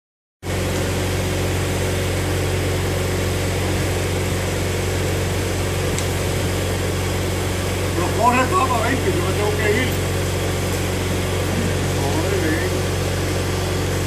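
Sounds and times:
engine idling: 0.4 - 14.0.

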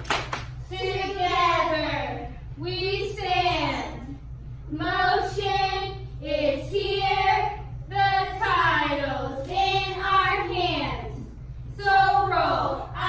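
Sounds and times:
girls chanting a cheer: 0.6 - 4.1.

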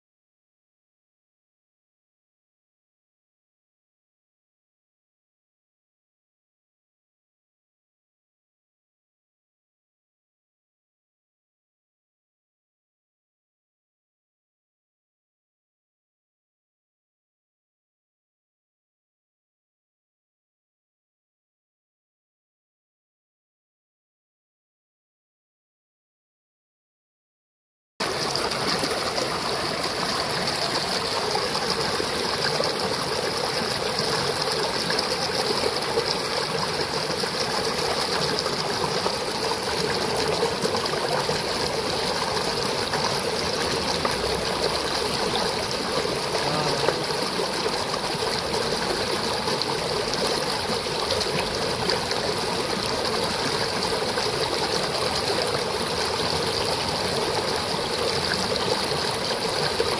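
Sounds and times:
stream rushing over rocks: 28.0 - 59.9.

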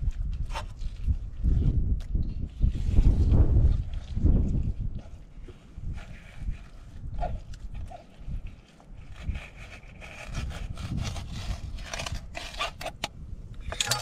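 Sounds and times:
knife slicing fish: 9.0 - 12.9.

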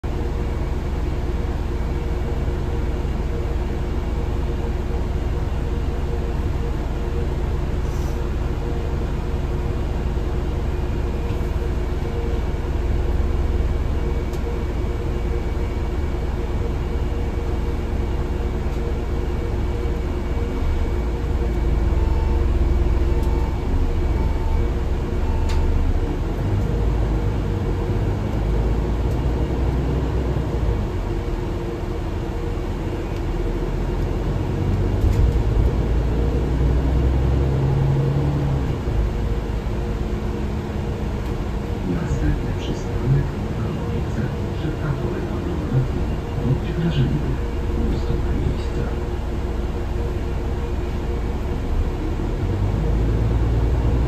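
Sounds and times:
bus engine drone: 0.0 - 54.0
road rumble: 0.0 - 54.0.

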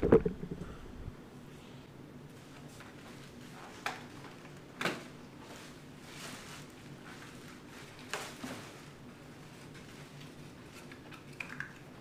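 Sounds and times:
plastic clicks and knocks: 0.0 - 0.7
faint steady hum: 0.0 - 12.0.

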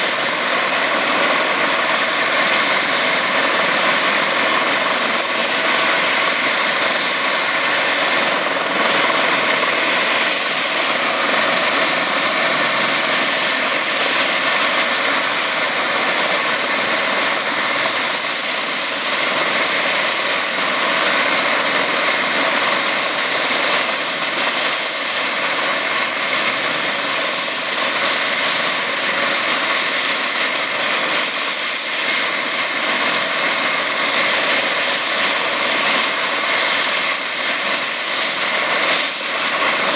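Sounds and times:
helicopter turbine and rotor whine: 0.0 - 39.9.

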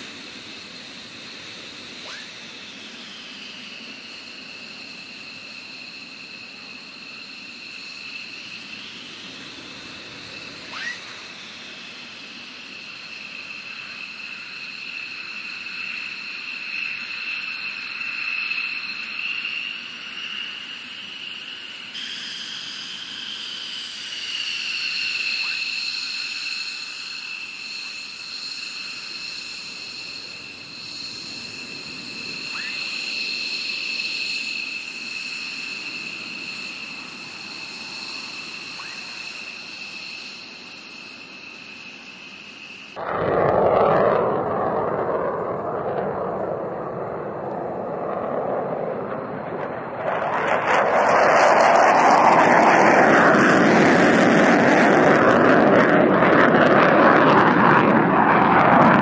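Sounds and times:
jet engines whining: 0.0 - 59.0
brief rising squeaks: 10.6 - 11.1.

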